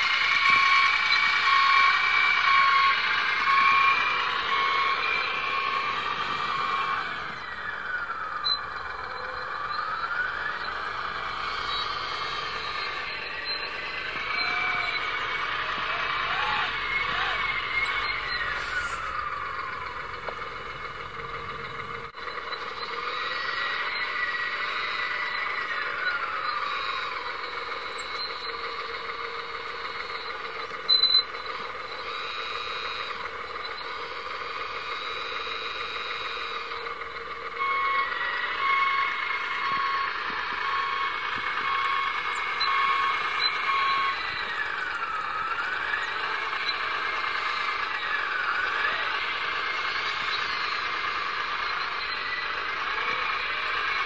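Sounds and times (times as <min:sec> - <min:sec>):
electric motor and gear whine: 0:00.0 - 0:54.0
reversing beeps: 0:00.0 - 0:54.0.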